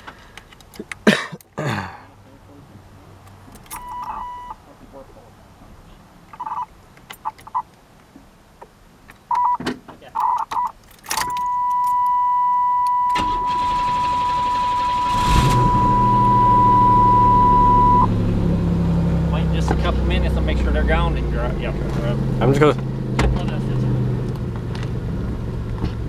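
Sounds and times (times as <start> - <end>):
steady warning tone: 3.8 - 4.6, 10.2 - 18.6
warning chime beeps: 3.8 - 4.6, 10.2 - 18.2
car engine idling: 13.0 - 26.0.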